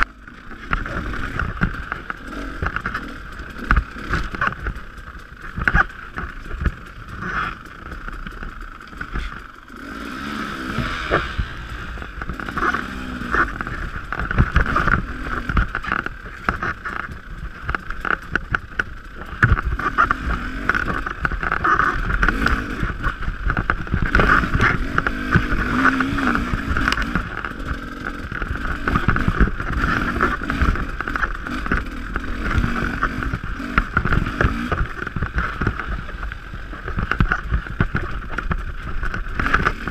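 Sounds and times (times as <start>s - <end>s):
dirt bike engine revving: 0.0s - 39.9s
knocks and rattles: 10.8s - 39.9s.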